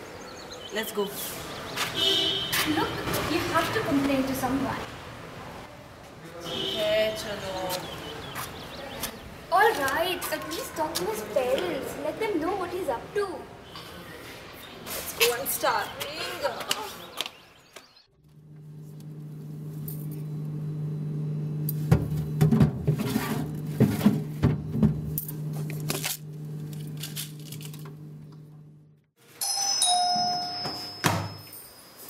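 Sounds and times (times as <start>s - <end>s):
electronic doorbell chime: 29.4s - 32.0s.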